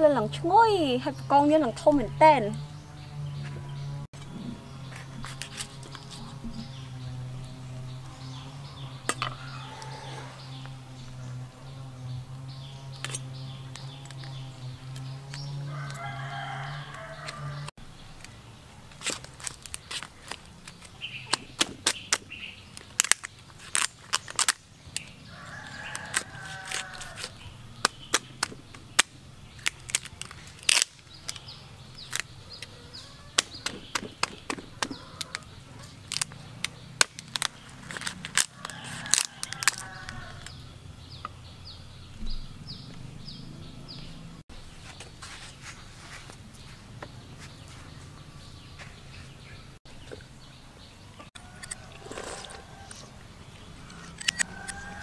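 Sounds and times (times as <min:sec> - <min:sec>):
small birds calling: 0:00.0 - 0:55.0
chickens calling: 0:00.5 - 0:18.1, 0:25.0 - 0:45.0.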